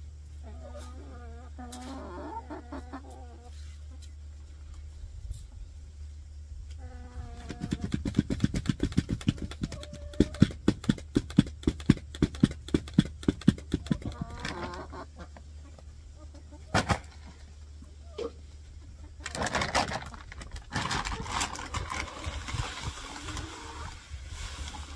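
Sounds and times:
chicken calling: 0.3s - 4.0s, 13.7s - 16.8s.

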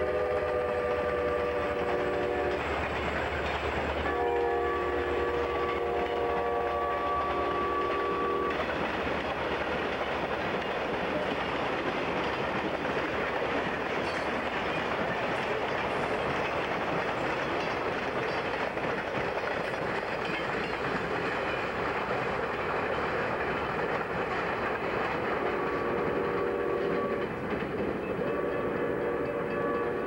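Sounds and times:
long steady horn tones: 0.0s - 2.7s, 4.0s - 8.6s, 25.4s - 27.3s, 28.2s - 30.0s
freight train rumbling past: 0.0s - 30.0s
wheels clattering on rail: 0.0s - 30.0s.

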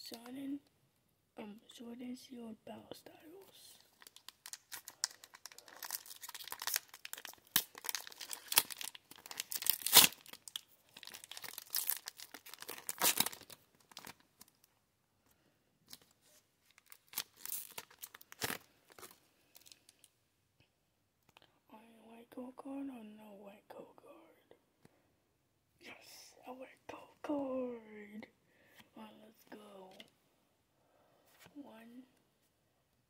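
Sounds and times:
foil wrapper ripping and crinkling: 3.8s - 14.6s, 16.7s - 20.1s.

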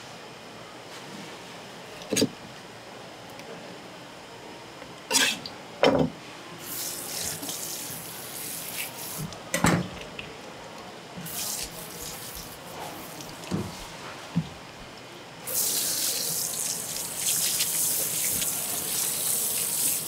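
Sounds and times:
water running from a tap: 15.5s - 20.0s.

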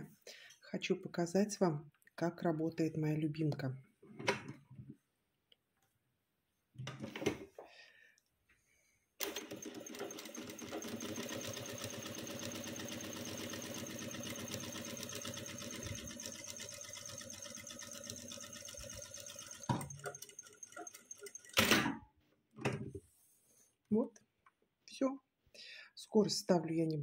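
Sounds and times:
sewing machine stitching: 9.2s - 21.9s.

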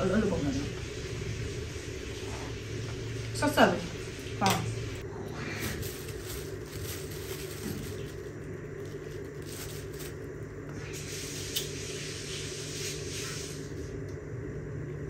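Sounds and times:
plastic bag rustling: 1.5s - 11.1s.

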